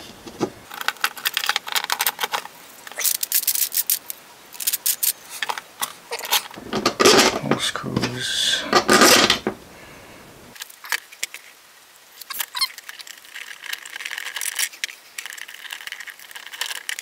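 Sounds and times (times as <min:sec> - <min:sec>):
scraping and rubbing parts: 0:00.0 - 0:09.7.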